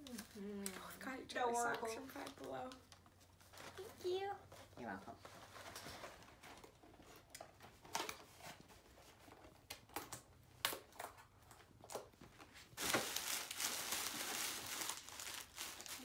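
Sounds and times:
paper crinkling: 0.0s - 9.5s, 11.4s - 16.0s
paper bag rustling: 12.6s - 16.0s.

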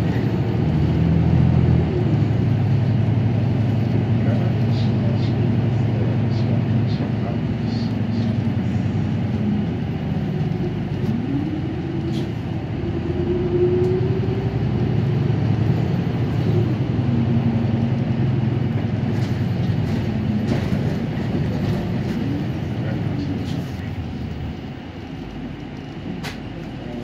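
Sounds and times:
bus engine running: 0.0s - 27.0s.

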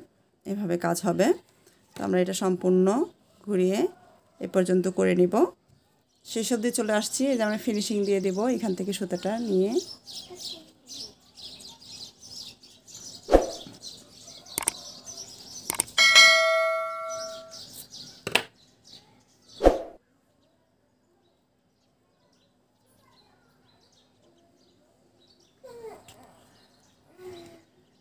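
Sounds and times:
birds chirping: 5.7s - 20.4s
bell-like chime: 16.0s - 17.7s.

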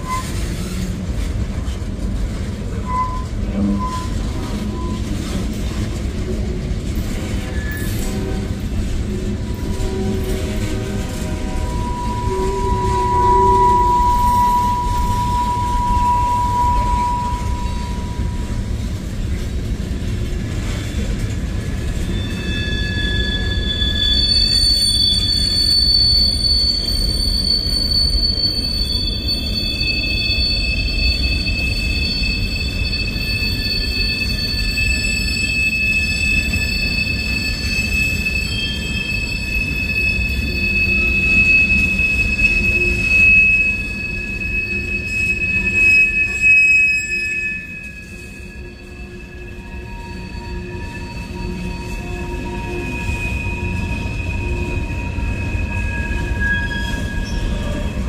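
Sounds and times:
shrill wheel squeal: 0.0s - 58.0s
train wheels rumbling on rail: 0.0s - 58.0s.

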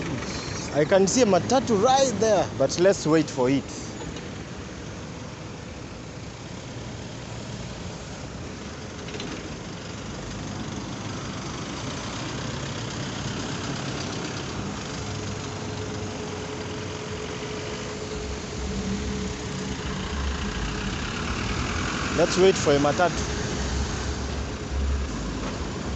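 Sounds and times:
vehicle engines and tyre noise: 0.0s - 25.9s
steady tone: 16.4s - 25.9s.

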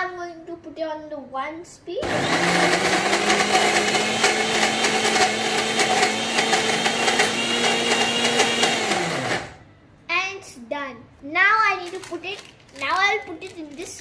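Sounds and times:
mixer grinder motor hum: 2.0s - 9.6s.

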